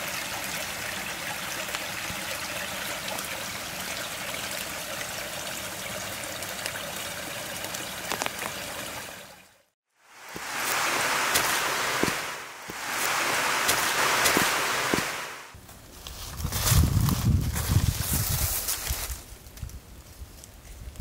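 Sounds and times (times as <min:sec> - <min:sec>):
creek trickling over rocks: 0:00.0 - 0:15.6
loud rushing noise: 0:10.1 - 0:15.6.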